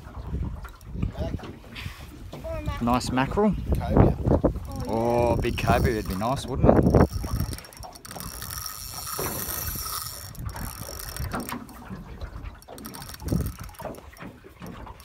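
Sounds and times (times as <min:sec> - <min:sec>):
fishing reel drag buzzing: 0:04.6 - 0:15.0.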